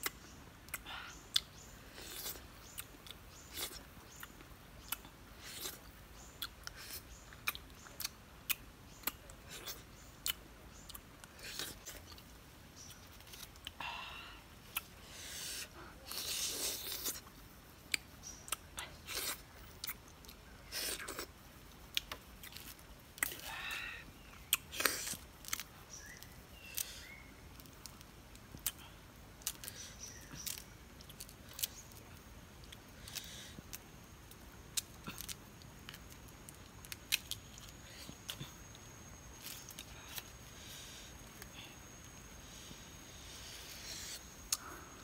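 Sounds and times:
fruit skin cracking and snapping: 0:17.9 - 0:23.5, 0:29.4 - 0:32.0, 0:32.6 - 0:40.4.

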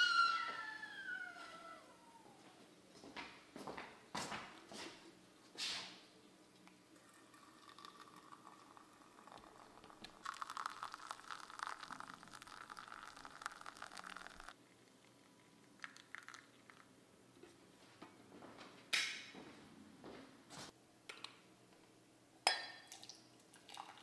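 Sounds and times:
hot water pouring into teapot: 0:07.0 - 0:16.9, 0:22.9 - 0:24.0.

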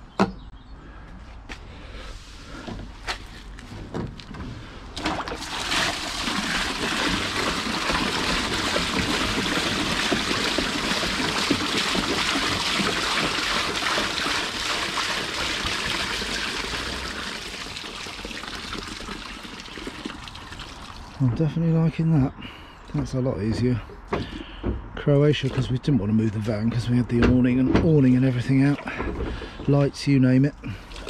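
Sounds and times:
water pouring into drain: 0:04.9 - 0:21.2, 0:28.1 - 0:29.7, 0:30.7 - 0:31.0.

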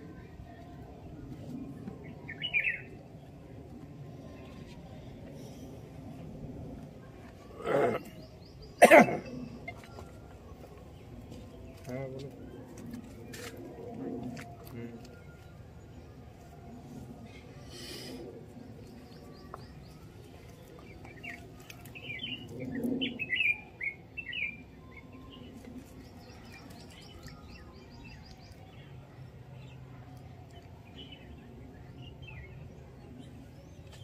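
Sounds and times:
small birds chirping: 0:18.8 - 0:28.9.

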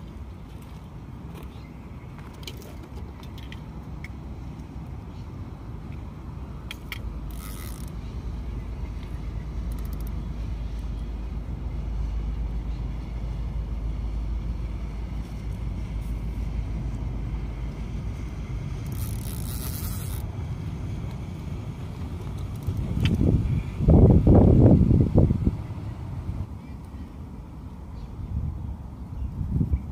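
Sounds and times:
wind rumble on microphone: 0:02.2 - 0:26.6, 0:27.5 - 0:29.9
fishing reel being cranked: 0:06.7 - 0:08.0, 0:09.7 - 0:10.1, 0:18.8 - 0:20.3.

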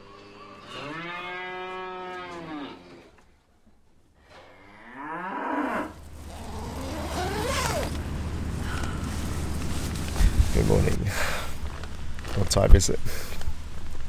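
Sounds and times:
cattle mooing: 0:00.0 - 0:03.1, 0:04.3 - 0:08.9.

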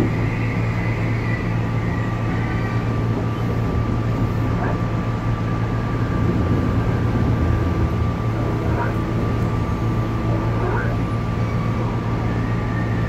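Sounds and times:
thin steady whine: 0:00.0 - 0:13.0
train interior rumble: 0:00.0 - 0:13.0.

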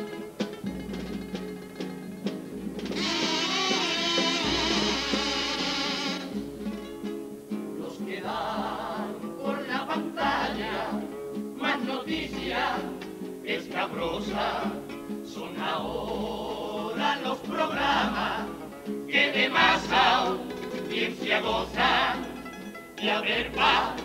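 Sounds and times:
drum and cymbal strikes: 0:00.0 - 0:07.4
acoustic guitars strumming: 0:00.0 - 0:24.0
men singing in group: 0:07.8 - 0:22.4, 0:23.0 - 0:24.0.

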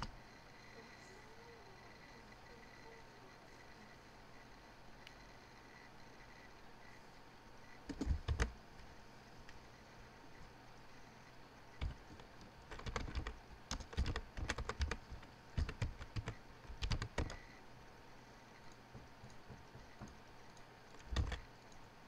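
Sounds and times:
computer keyboard typing: 0:07.9 - 0:08.6, 0:11.8 - 0:17.6, 0:18.6 - 0:21.8.

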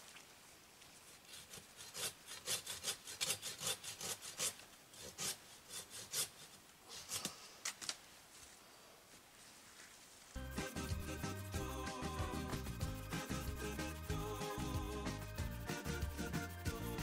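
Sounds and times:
hand saw cutting branch: 0:01.1 - 0:07.4.

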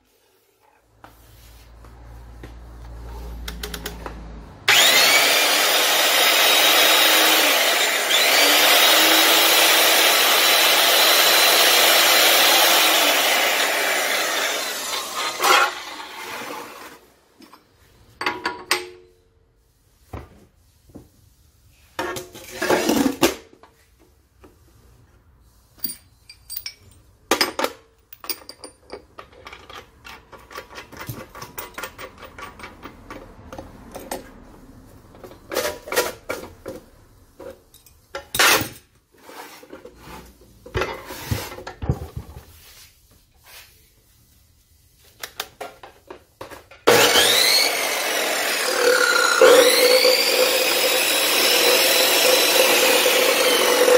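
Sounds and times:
metal parts clinking: 0:25.8 - 0:32.9.

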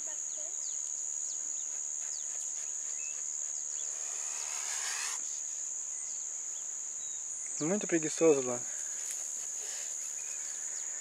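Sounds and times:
high-pitched insect drone: 0:02.8 - 0:06.2.

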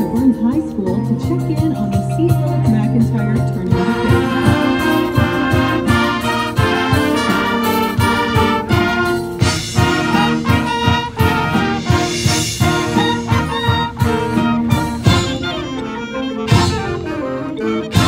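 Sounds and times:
steady drum beat: 0:00.0 - 0:18.0
marching band brass and woodwinds: 0:03.6 - 0:18.0.

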